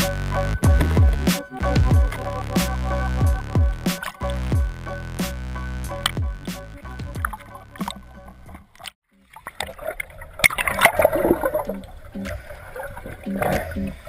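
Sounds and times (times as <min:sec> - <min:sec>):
music beat: 0:00.0 - 0:08.6, 0:11.6 - 0:12.6, 0:13.2 - 0:14.0
music notes: 0:00.0 - 0:08.6
water gurgling and splashing: 0:06.1 - 0:14.0.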